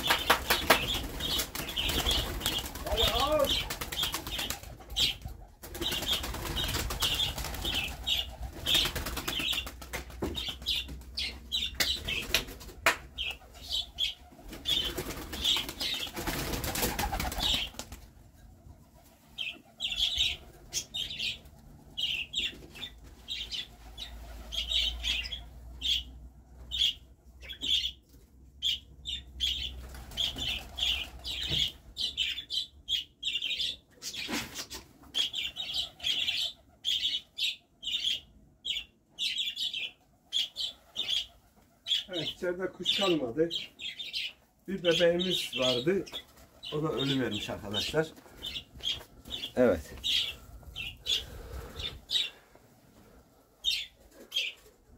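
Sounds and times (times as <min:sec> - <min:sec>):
pigeons flapping wings: 0:00.0 - 0:18.2, 0:29.8 - 0:31.5, 0:46.1 - 0:46.8.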